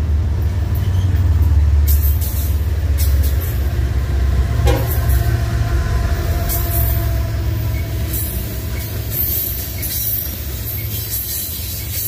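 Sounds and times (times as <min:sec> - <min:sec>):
diesel locomotive rumble: 0:00.0 - 0:12.0
freight cars rolling past: 0:00.0 - 0:12.0
wheels clicking on rails: 0:00.0 - 0:12.0
steady tones: 0:04.6 - 0:05.8.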